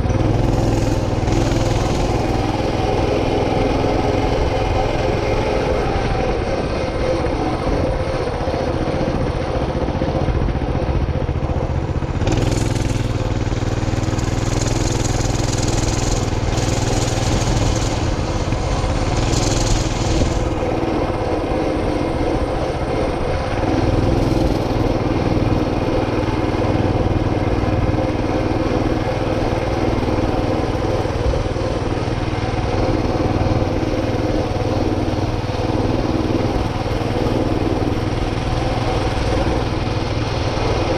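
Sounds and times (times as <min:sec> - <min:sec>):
motorcycle engine running: 0:00.0 - 0:40.9.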